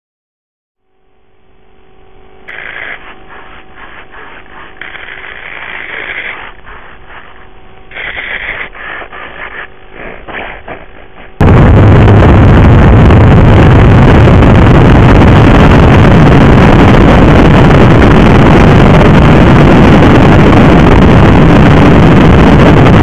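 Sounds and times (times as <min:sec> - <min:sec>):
faint steady hum: 0:00.8 - 0:23.0
rubbing and scraping handling noise: 0:02.5 - 0:11.4.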